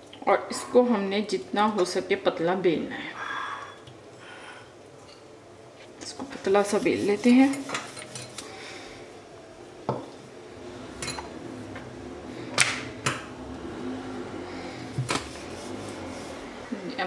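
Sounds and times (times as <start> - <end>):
rolling pin on countertop: 6.3 - 8.4, 14.9 - 16.5.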